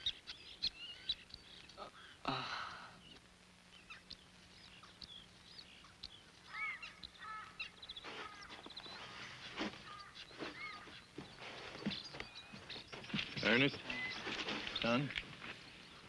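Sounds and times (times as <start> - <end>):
faint birds chirping: 0.0 - 16.0
bird trill: 3.0 - 15.1.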